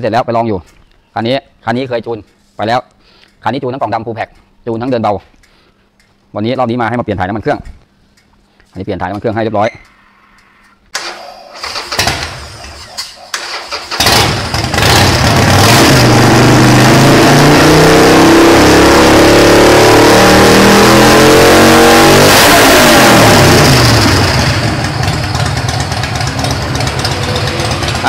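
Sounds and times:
motorcycle engine revving: 11.0s - 28.0s.

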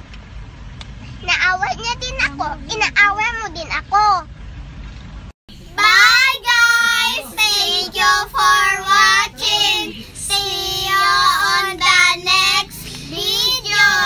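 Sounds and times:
girls singing together: 5.6s - 14.0s.

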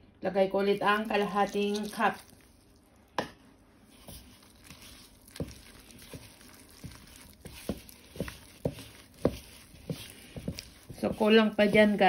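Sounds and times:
hand squishing dough in bowl: 0.4s - 12.0s.

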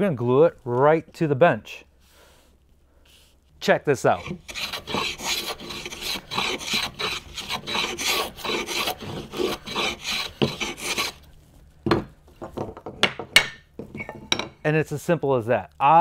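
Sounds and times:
hand plane shaving wood: 4.1s - 11.2s.

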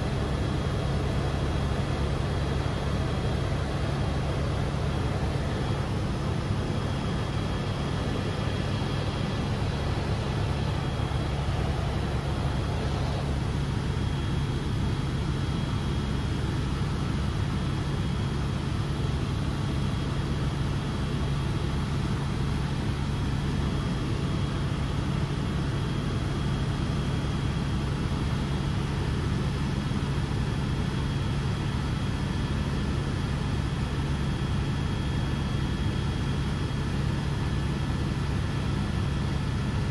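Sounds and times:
high whine: 0.0s - 16.4s
helicopter engine and rotors drone: 0.0s - 39.9s.

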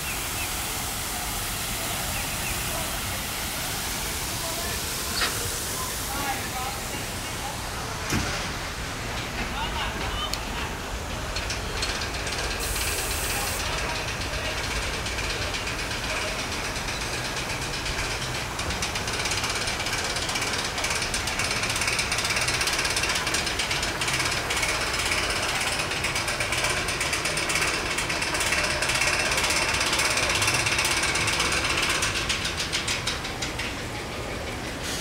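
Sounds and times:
ride machinery ratcheting clatter: 11.0s - 35.0s.

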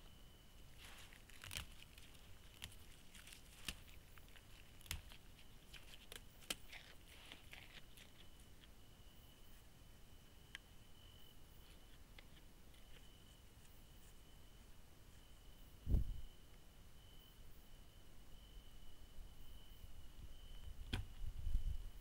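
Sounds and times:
thin steady high whine: 0.0s - 22.0s
faint clicks and crackles: 0.8s - 8.8s.

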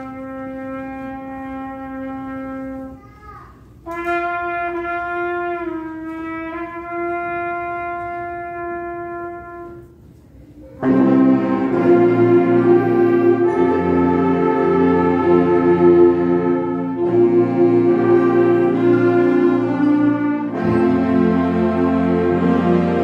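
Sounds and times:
concert band playing: 10.8s - 23.0s.

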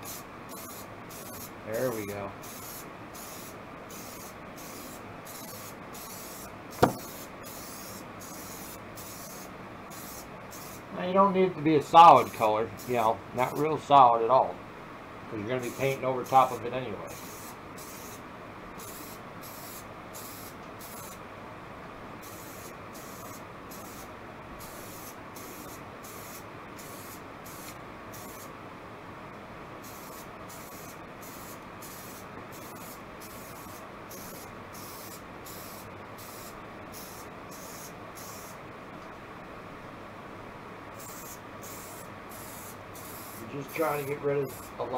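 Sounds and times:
aerosol spray can hissing: 0.0s - 1.5s, 2.4s - 10.9s, 15.6s - 18.2s, 18.8s - 21.2s, 22.2s - 28.5s, 29.8s - 38.6s, 41.0s - 44.8s.

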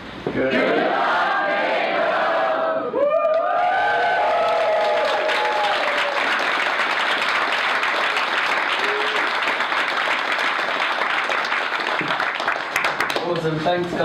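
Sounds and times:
audience clapping and cheering: 3.0s - 14.0s.

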